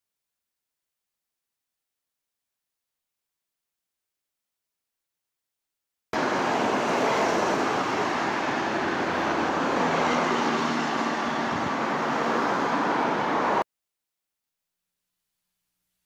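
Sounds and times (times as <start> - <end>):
road traffic passing: 6.2 - 13.6.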